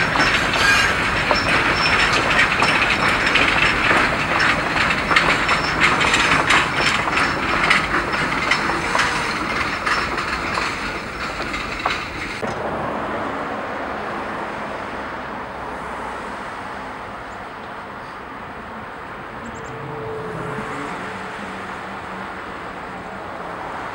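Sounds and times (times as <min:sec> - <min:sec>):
train wheels clicking over rail joints: 0:00.0 - 0:12.7
road traffic hiss: 0:00.0 - 0:23.9.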